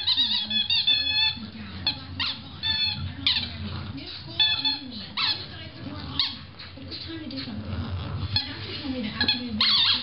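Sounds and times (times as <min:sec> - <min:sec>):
squeaky toy squeaks: 0:00.0 - 0:03.6, 0:04.4 - 0:05.5, 0:09.2 - 0:10.0.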